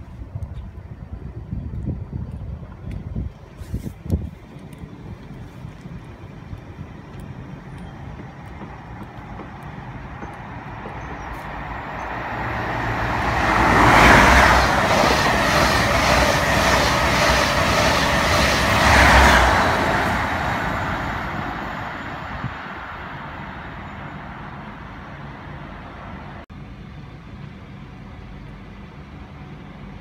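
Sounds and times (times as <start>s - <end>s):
diesel train passing: 4.1s - 30.0s
train wheels clattering: 7.0s - 12.1s, 13.2s - 21.4s.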